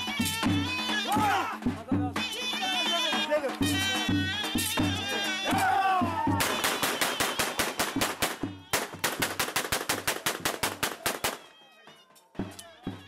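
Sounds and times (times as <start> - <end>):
rapid sharp bangs: 6.4 - 11.5.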